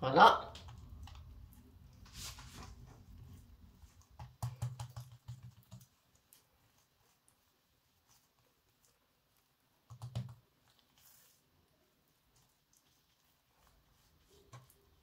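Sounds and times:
hands tapping dough on counter: 0:04.1 - 0:05.9.

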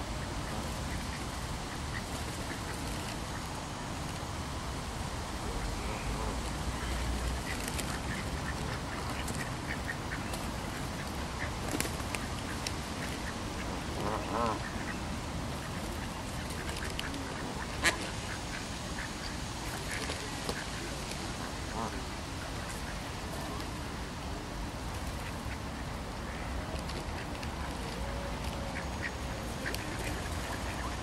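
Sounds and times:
scuffle of feeding flock: 0:00.0 - 0:31.0
ducks quacking: 0:05.4 - 0:23.6, 0:25.2 - 0:31.0.

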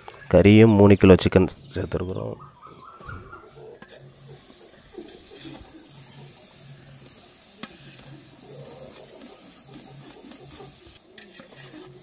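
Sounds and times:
food sizzling in a metal pot: 0:04.0 - 0:12.0.

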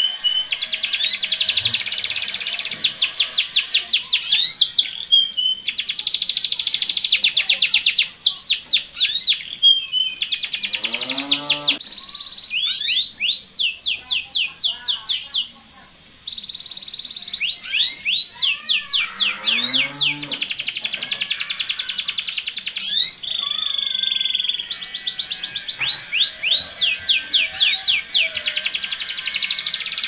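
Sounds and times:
canary song with fast rolls: 0:16.4 - 0:23.6.

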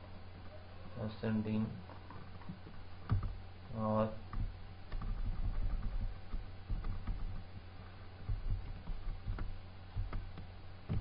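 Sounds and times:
low steady hum: 0:00.0 - 0:11.0
computer keyboard keys clicking: 0:04.3 - 0:07.4, 0:08.2 - 0:11.0.

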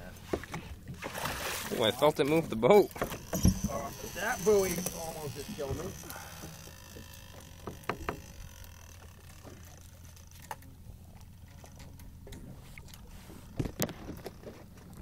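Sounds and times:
outboard motor idling: 0:00.0 - 0:15.0
sharp knocks and clicks: 0:03.0 - 0:03.9, 0:05.6 - 0:08.4.

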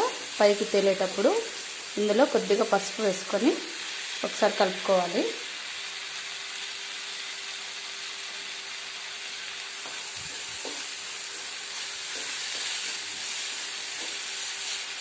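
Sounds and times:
paste sizzling in oil: 0:00.0 - 0:15.0
spatula scraping a pan: 0:10.4 - 0:15.0.

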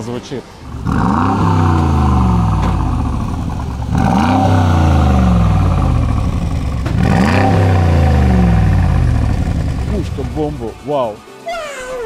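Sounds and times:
engine revving: 0:00.6 - 0:10.9.

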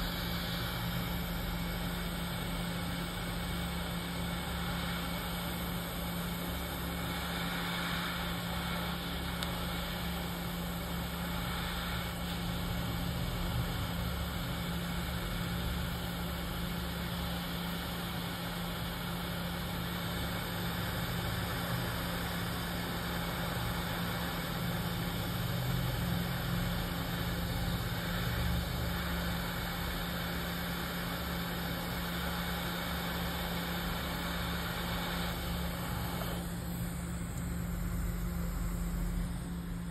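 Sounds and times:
low blower hum: 0:00.0 - 0:15.2, 0:28.9 - 0:39.9
hot air blower rushing: 0:03.2 - 0:12.6, 0:31.2 - 0:39.6.

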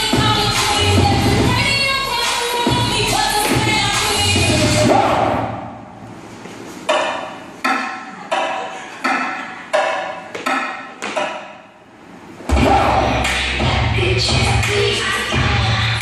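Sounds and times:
dance music over speakers: 0:00.0 - 0:05.8, 0:12.5 - 0:16.0.

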